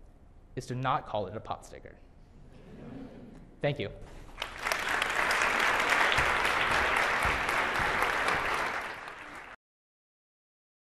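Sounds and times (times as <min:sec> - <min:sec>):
large audience applauding: 0:04.3 - 0:09.6.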